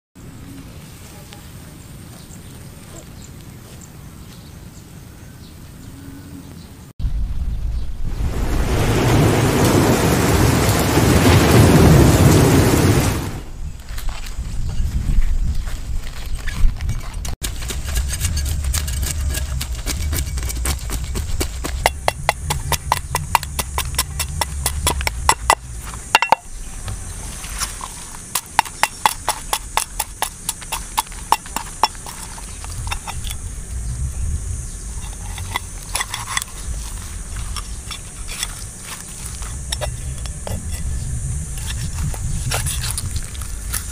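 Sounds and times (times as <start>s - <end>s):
cleaver scraping fish scales: 16.5s - 25.6s, 27.2s - 33.4s, 34.9s - 43.9s.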